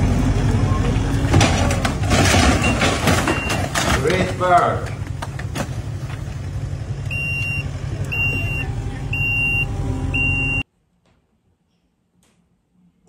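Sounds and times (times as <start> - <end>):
diesel engine running: 0.0 - 10.6
reversing alarm beeping: 7.1 - 10.6.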